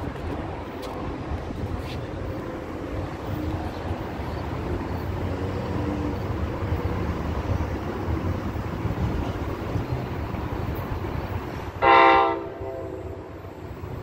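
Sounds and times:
distant train rumble: 0.0 - 14.0.

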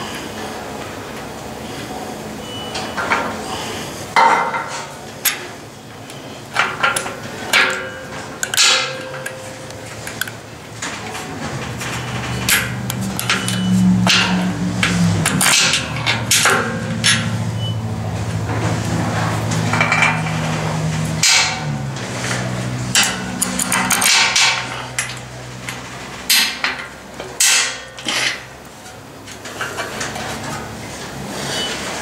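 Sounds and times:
metal knocks and clicks: 6.6 - 17.5.

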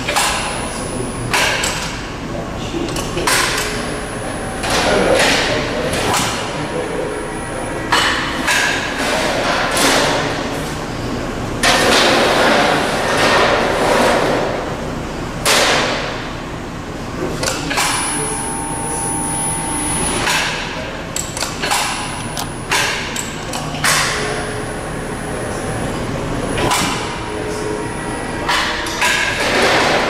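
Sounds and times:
machine drive whine: 0.0 - 8.5, 16.2 - 30.0.

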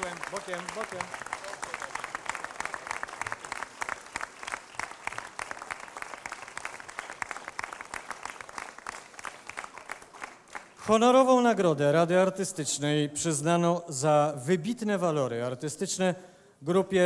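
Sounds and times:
crowd applauding: 0.0 - 11.3.

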